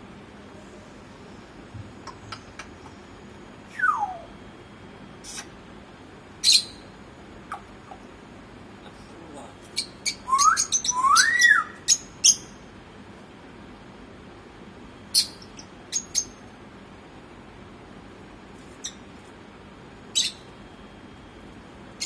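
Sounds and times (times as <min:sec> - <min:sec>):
parrot whistling: 0:03.7 - 0:04.3, 0:10.0 - 0:12.6
parrot sharp chirps: 0:20.1 - 0:20.5.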